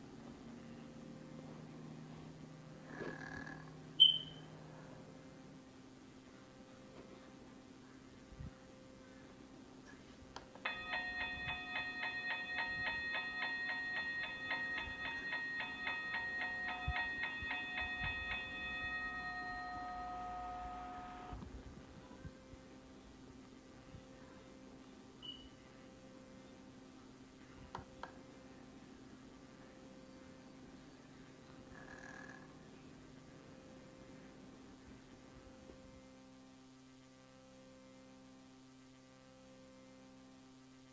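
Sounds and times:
faint electrical hum: 0:00.0 - 0:40.9
steady ringing tone: 0:10.6 - 0:21.4
toy crossing bell dinging: 0:10.6 - 0:21.4.

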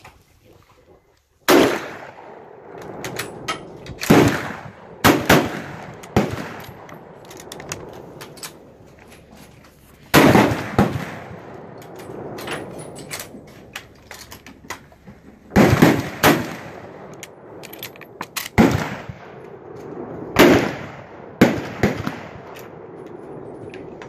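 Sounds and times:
rifle shots with echo: 0:01.5 - 0:08.8, 0:10.1 - 0:13.4, 0:15.5 - 0:17.6, 0:18.5 - 0:23.9.

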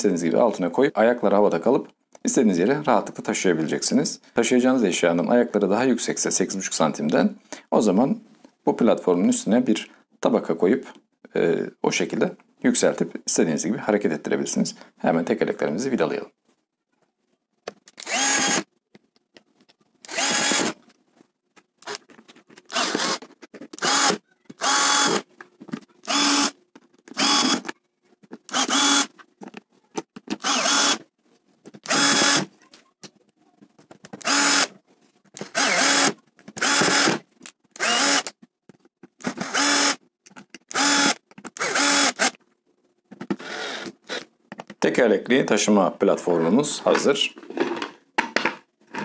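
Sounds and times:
cordless drill driving screws: 0:18.0 - 0:18.7, 0:20.0 - 0:20.8, 0:22.7 - 0:23.2, 0:23.8 - 0:25.2, 0:26.0 - 0:26.6, 0:27.2 - 0:27.7, 0:28.5 - 0:29.1, 0:30.4 - 0:31.0, 0:31.8 - 0:32.5, 0:34.2 - 0:34.7, 0:35.4 - 0:37.2, 0:37.8 - 0:38.4, 0:39.2 - 0:40.0, 0:40.7 - 0:42.4, 0:43.4 - 0:44.3.

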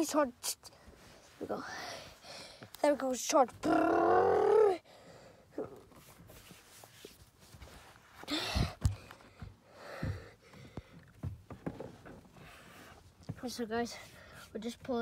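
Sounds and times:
breathy gasp: 0:08.3 - 0:11.0.

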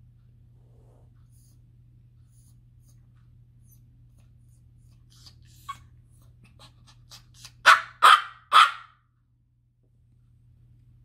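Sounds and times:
puppy barking: 0:07.4 - 0:09.0.

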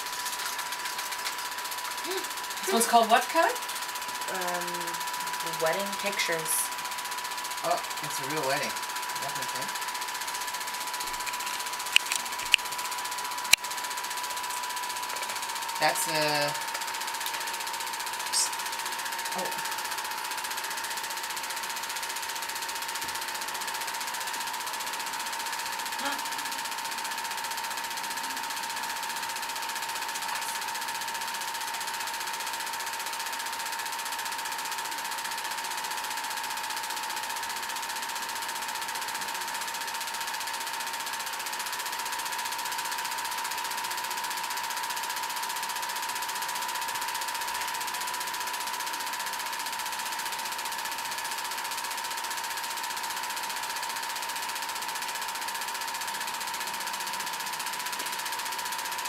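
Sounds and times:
projector high hum: 0:00.0 - 0:34.3
film projector clattering: 0:00.0 - 0:59.0.

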